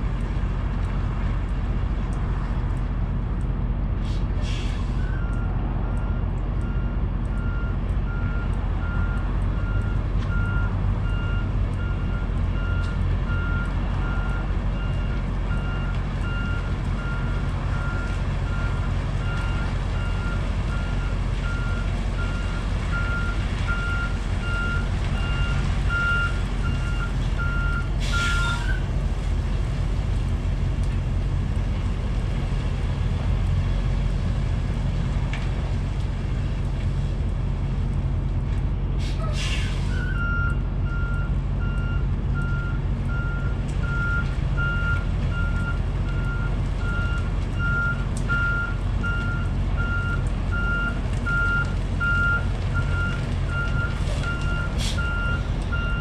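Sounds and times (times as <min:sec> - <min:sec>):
diesel engine rumble: 0:00.0 - 0:56.0
air brakes hissing: 0:04.0 - 0:05.2, 0:28.0 - 0:28.8, 0:39.0 - 0:40.2, 0:54.0 - 0:55.2
truck reverse alarm beeping: 0:05.0 - 0:28.8, 0:39.7 - 0:56.0.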